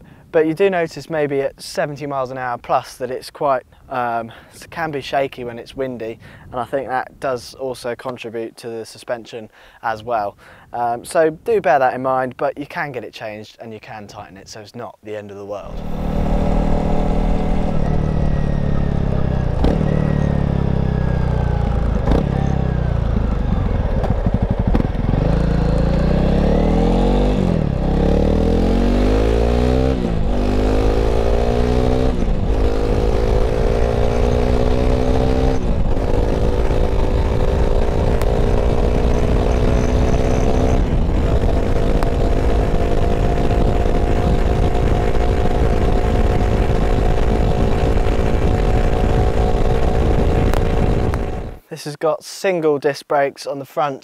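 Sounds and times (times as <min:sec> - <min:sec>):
motorcycle engine shifting gears: 0:15.7 - 0:51.6.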